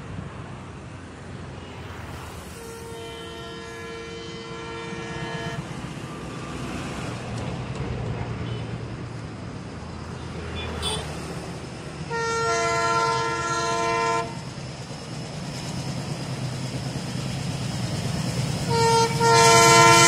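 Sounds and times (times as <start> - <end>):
locomotive engine rumbling: 0.7 - 20.0
diesel locomotive horn blast: 1.6 - 7.1, 10.4 - 11.4, 12.0 - 14.5, 18.4 - 20.0.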